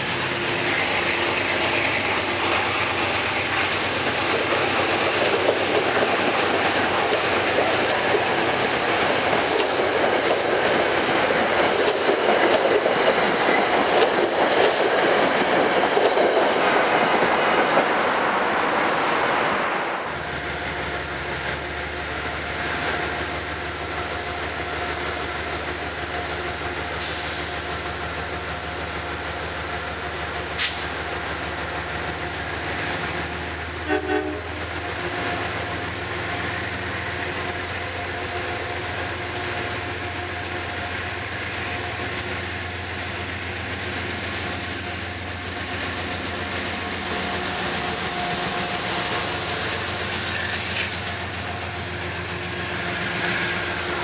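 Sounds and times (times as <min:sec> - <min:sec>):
diesel locomotive engine whining: 0:00.0 - 0:54.0
train horn: 0:33.8 - 0:34.6.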